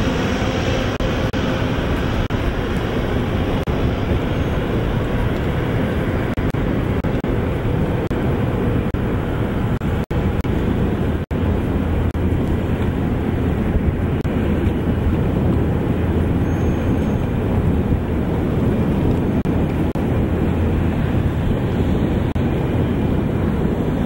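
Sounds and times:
plane piston engine drone: 0.0s - 24.0s
rush of outdoor noise: 0.0s - 24.0s.

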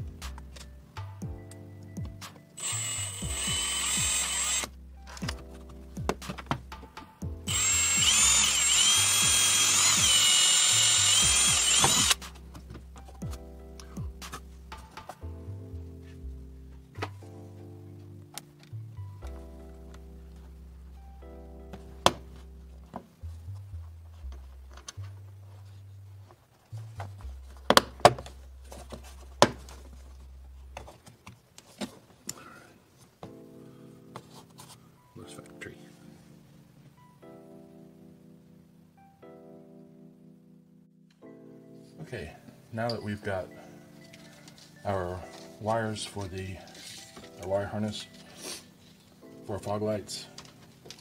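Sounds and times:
background music with bass: 0.0s - 31.0s
cordless drill cutting plastic: 2.6s - 4.7s, 7.5s - 12.2s.

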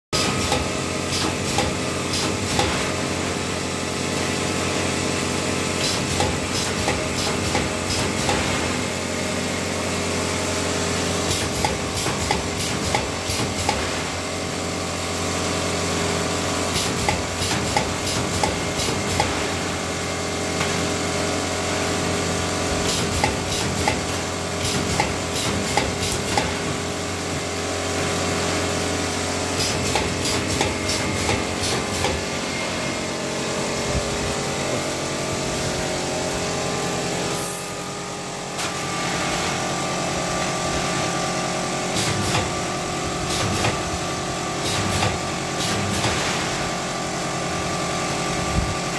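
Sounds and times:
spot welder clacks: 0.2s - 3.2s, 5.7s - 9.3s, 10.9s - 32.5s, 41.8s - 46.8s.

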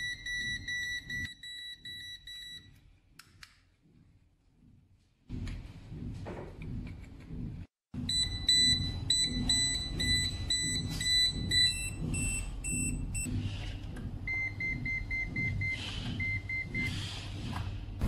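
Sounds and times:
multimeter alarm beep: 0.0s - 2.7s, 8.1s - 13.3s, 14.3s - 16.9s.

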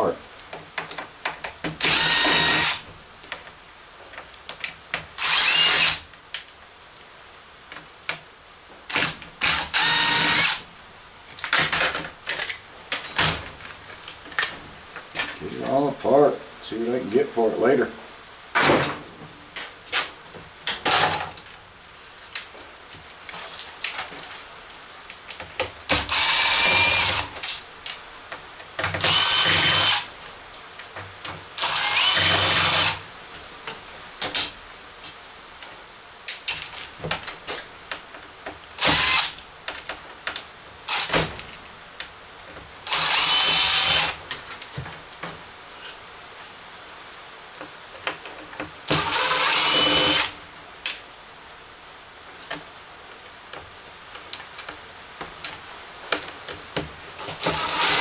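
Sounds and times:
cordless drill whining: 1.8s - 2.8s, 5.2s - 6.0s, 8.9s - 10.6s, 26.0s - 27.3s, 29.0s - 30.1s, 31.6s - 33.0s, 38.8s - 39.4s, 42.9s - 44.2s, 48.9s - 50.3s, 57.4s - 58.0s.

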